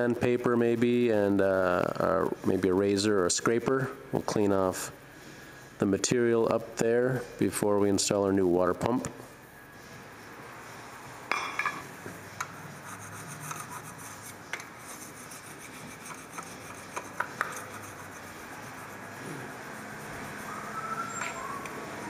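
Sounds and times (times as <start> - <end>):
scraping residue off metal: 12.6 - 20.6.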